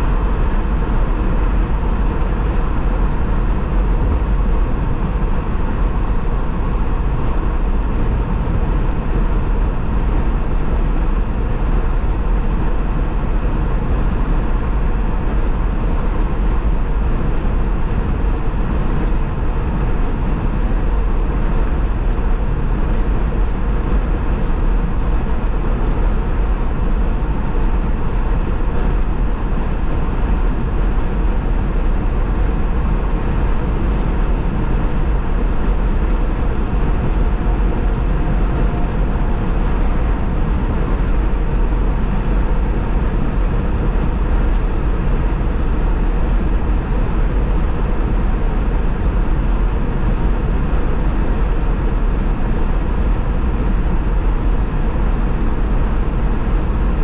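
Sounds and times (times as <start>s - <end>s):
car road noise at speed: 0.0s - 57.0s.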